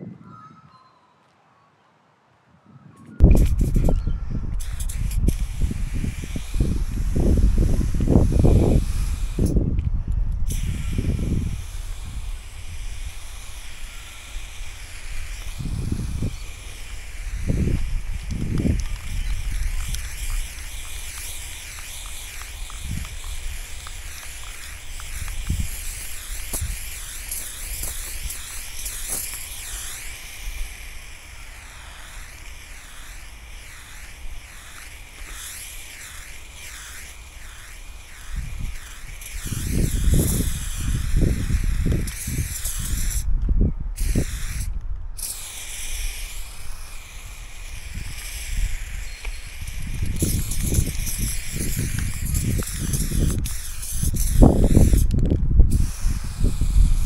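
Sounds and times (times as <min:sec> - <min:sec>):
spray paint can hissing: 0:03.2 - 0:57.0.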